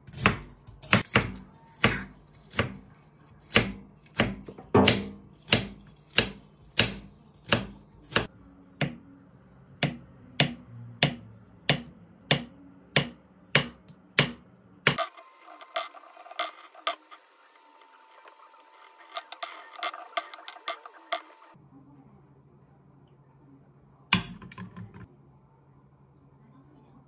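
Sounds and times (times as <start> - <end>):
knife chopping on wooden board: 3.5 - 9.0, 9.8 - 15.0.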